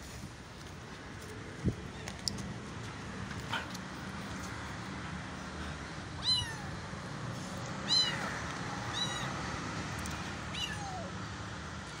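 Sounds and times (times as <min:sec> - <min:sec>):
kitten meowing: 0:06.2 - 0:06.8, 0:07.8 - 0:09.4, 0:10.5 - 0:11.1.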